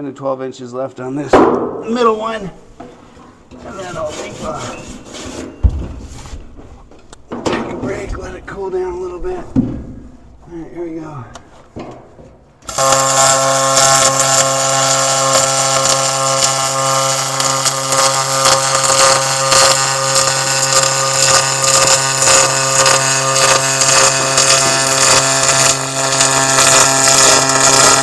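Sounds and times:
welding arc crackling hiss: 0:12.6 - 0:28.0.

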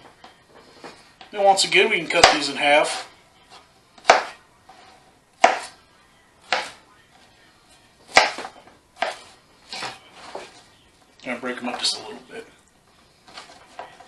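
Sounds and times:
knife chopping on plastic board: 0:02.1 - 0:02.5, 0:04.0 - 0:04.4, 0:05.4 - 0:05.8, 0:06.4 - 0:06.8, 0:08.1 - 0:10.5.

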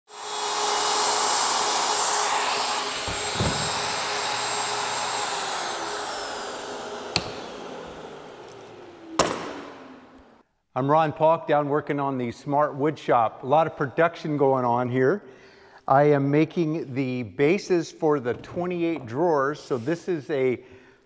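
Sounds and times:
motor winding down: 0:00.1 - 0:10.4
router cutting wood: 0:00.1 - 0:10.4
thump: 0:03.0 - 0:04.0
sharp knocks: 0:03.0 - 0:04.1.

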